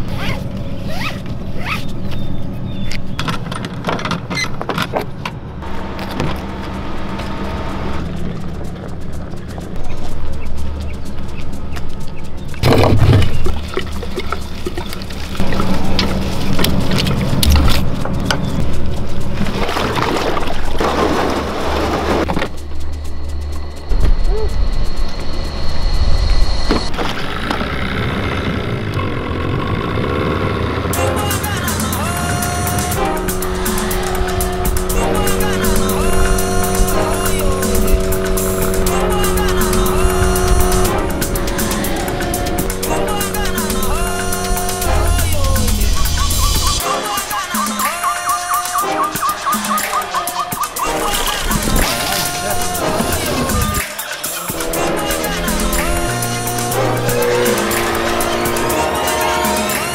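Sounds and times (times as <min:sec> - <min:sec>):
engine running: 0:00.0 - 0:46.9, 0:49.0 - 0:59.9.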